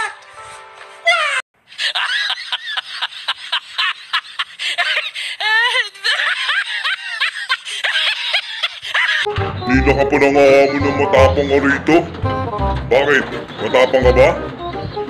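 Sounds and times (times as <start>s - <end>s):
high-pitched giggling laughter: 1.7s - 9.3s.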